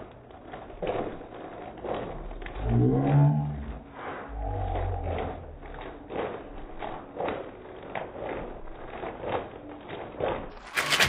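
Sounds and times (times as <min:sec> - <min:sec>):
liquid sloshing in shaker bottle: 0:05.6 - 0:11.0.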